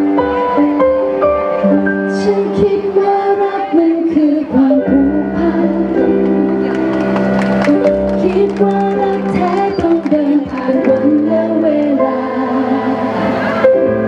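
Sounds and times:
instrumental accompaniment: 0:00.0 - 0:14.0
woman singing pop ballad: 0:02.1 - 0:06.9, 0:07.6 - 0:13.2.

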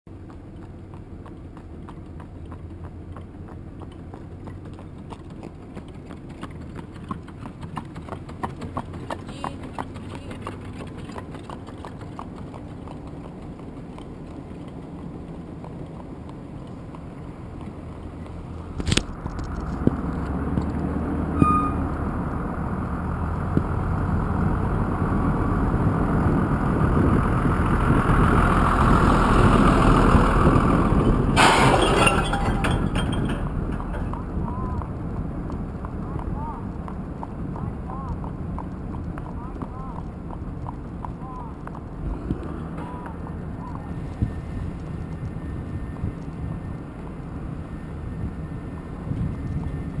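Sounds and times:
horse hooves on pavement: 0:00.1 - 0:21.3, 0:22.4 - 0:50.0
car driving slowly: 0:00.1 - 0:50.0
wind noise: 0:18.6 - 0:39.2, 0:43.3 - 0:50.0.

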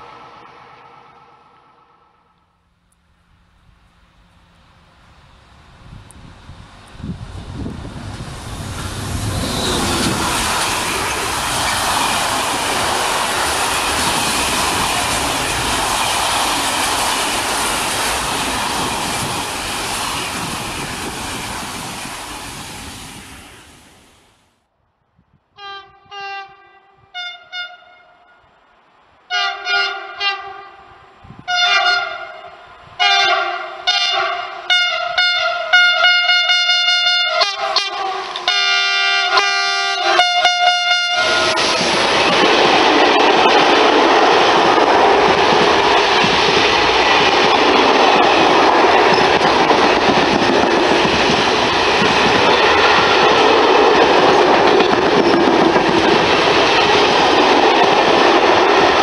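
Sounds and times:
train wheels rushing on rails: 0:03.6 - 0:24.4, 0:37.3 - 0:59.0
locomotive horn short blasts: 0:25.6 - 0:28.4, 0:29.3 - 0:30.8, 0:31.5 - 0:41.6.

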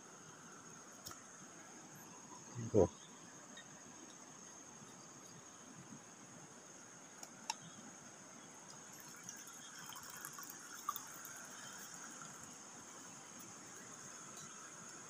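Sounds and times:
coffee pouring from flask: 0:08.7 - 0:12.5.

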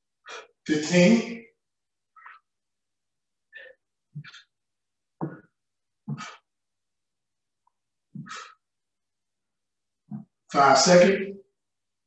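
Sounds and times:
man's forceful breaths: 0:05.2 - 0:06.6, 0:08.1 - 0:08.7.

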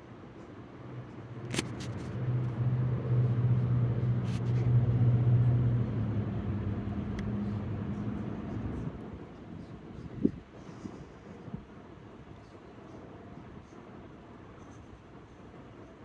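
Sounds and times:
car engine running: 0:01.4 - 0:09.1.

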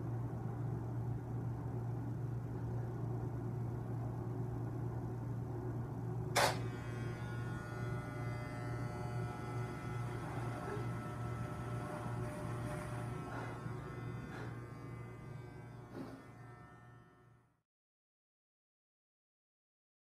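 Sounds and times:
sharp click: 0:06.4 - 0:06.6
hair clippers buzzing: 0:06.4 - 0:17.5.

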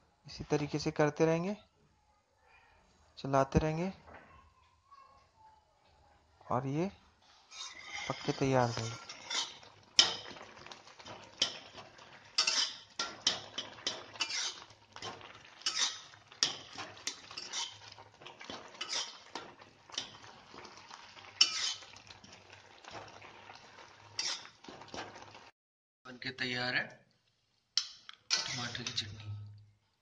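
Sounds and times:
metal spatula scraping a pan: 0:07.2 - 0:25.4, 0:27.8 - 0:29.5.

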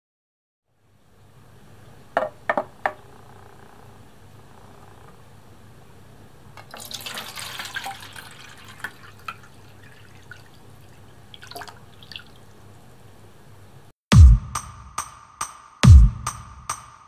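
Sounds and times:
water drips and plops: 0:06.6 - 0:12.5
water pouring and splashing: 0:06.6 - 0:12.6
deep bass hit: 0:14.1 - 0:15.0, 0:15.8 - 0:16.7.

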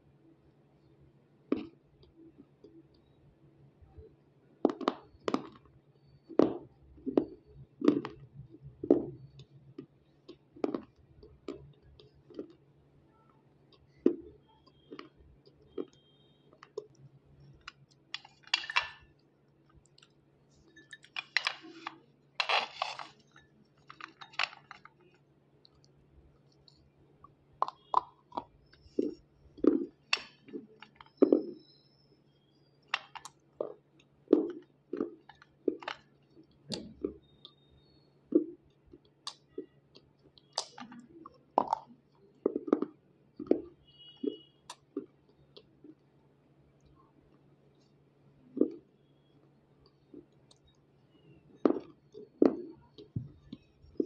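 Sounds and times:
crunching and chewing chalky chunks: 0:01.5 - 0:02.8, 0:04.7 - 0:12.7, 0:13.7 - 0:31.6, 0:32.9 - 0:46.2.

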